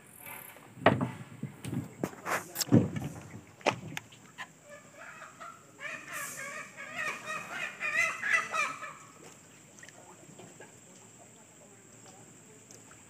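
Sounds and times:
bird clucking calls: 4.1s - 9.3s.

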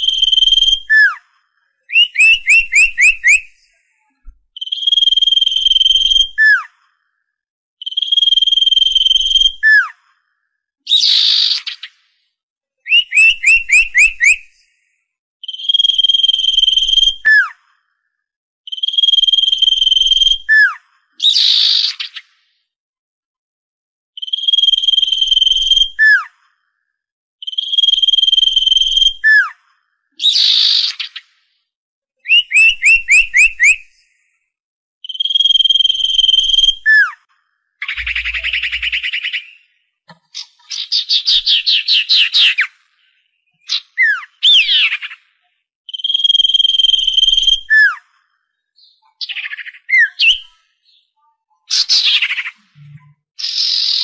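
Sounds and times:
bird whistling: 0.0s - 1.2s, 1.9s - 3.6s, 4.2s - 6.7s, 7.9s - 9.9s, 12.9s - 14.5s, 15.4s - 17.5s, 24.2s - 26.3s, 32.2s - 33.9s, 35.1s - 37.2s, 37.8s - 39.8s, 43.6s - 45.2s, 45.9s - 48.0s, 48.8s - 50.5s
falling bird chirps: 37.8s - 42.6s
harsh rasping bird note: 37.9s - 39.5s.

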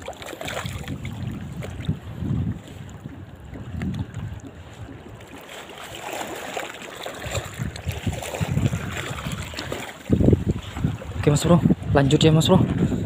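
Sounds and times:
wind buffeting microphone: 0.0s - 5.8s, 7.1s - 13.0s
seawater sloshing over rocks: 0.0s - 13.0s.

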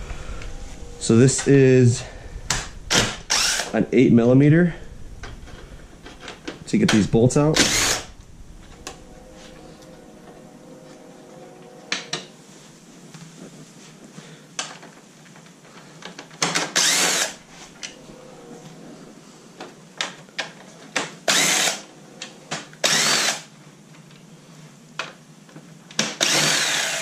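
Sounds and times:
cordless drill motor whine: 0.0s - 3.8s, 7.4s - 10.0s, 16.8s - 19.0s, 21.3s - 21.9s, 22.8s - 23.5s, 26.2s - 27.0s.

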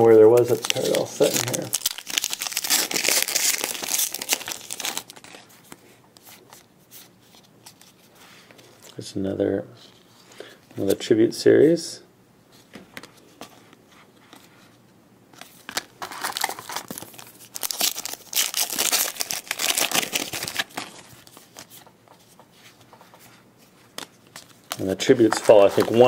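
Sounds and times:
wrapper tearing and crinkling: 0.3s - 5.5s, 15.8s - 21.4s, 24.6s - 26.0s.

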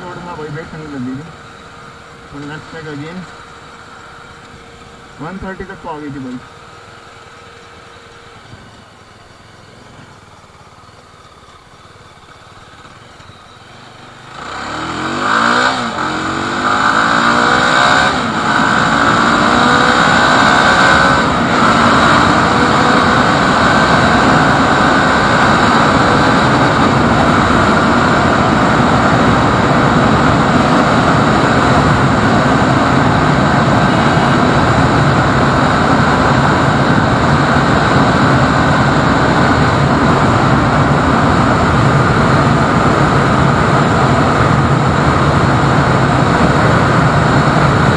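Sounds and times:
motorcycle engine accelerating: 0.0s - 47.9s
wind noise: 14.6s - 47.9s.

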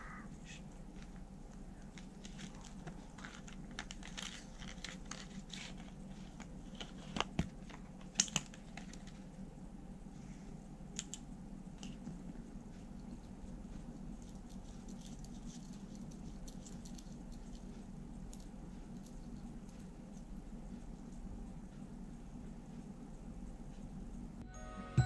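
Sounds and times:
plastic packaging crinkling: 1.8s - 9.3s.

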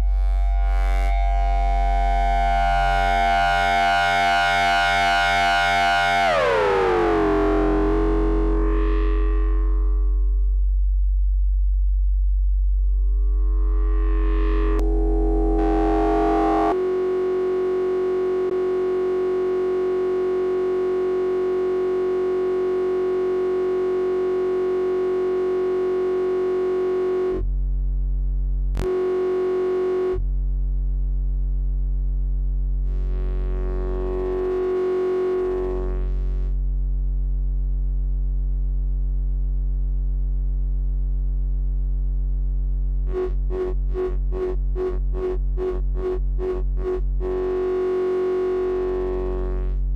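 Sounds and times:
synthesizer holding steady note: 0.0s - 10.7s, 12.7s - 27.4s, 28.8s - 30.2s, 32.9s - 36.5s, 47.3s - 49.9s.

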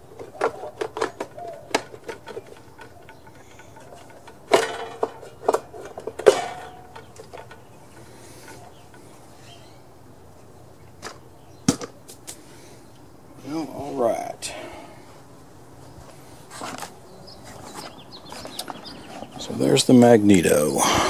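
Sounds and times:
knocks and clatter of engine housing: 0.0s - 9.1s.

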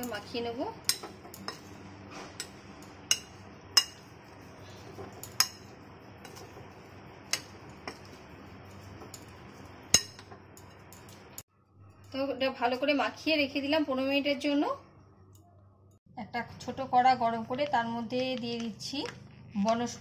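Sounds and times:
metal spoon clinking bowl: 0.8s - 1.8s, 2.4s - 4.4s, 5.0s - 6.6s, 7.3s - 12.8s
spoon scraping: 0.8s - 12.2s.

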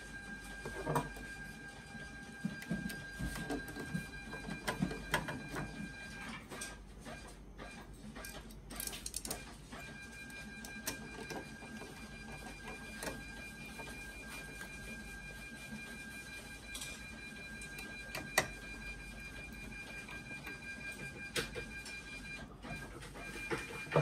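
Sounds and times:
metal parts clicking and tapping: 8.2s - 9.4s.

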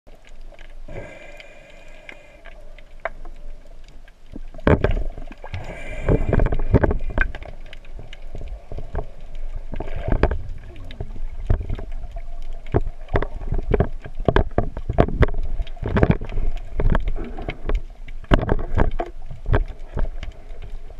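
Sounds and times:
faint steady whine: 0.1s - 12.4s
sharp underwater clicks: 0.1s - 20.9s.

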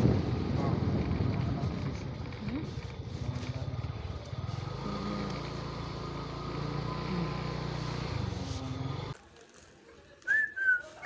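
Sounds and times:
scooter engine running: 0.0s - 9.2s.

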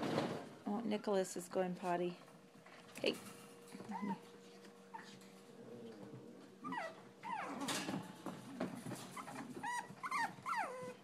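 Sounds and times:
puppies whimpering: 3.8s - 4.3s, 6.6s - 7.8s, 9.1s - 11.0s.

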